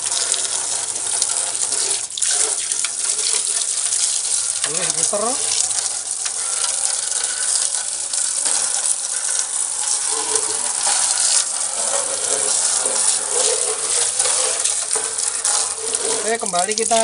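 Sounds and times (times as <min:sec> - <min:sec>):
hose water spraying and splashing: 0:00.0 - 0:17.0.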